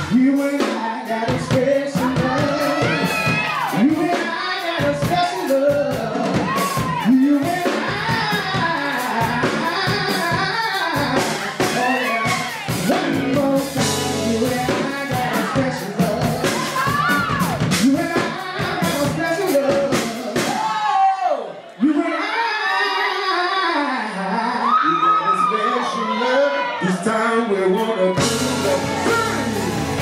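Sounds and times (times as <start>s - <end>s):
man singing: 0.0s - 20.7s, 21.8s - 30.0s
drums: 0.0s - 21.3s, 28.1s - 30.0s
electric guitar: 28.1s - 30.0s.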